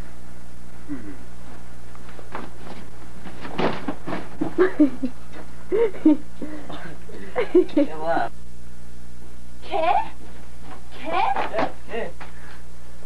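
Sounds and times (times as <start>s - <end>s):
steady low hum: 0.0s - 13.0s
person's indistinct vocal sounds: 0.9s - 1.2s
rustling: 1.4s - 4.6s.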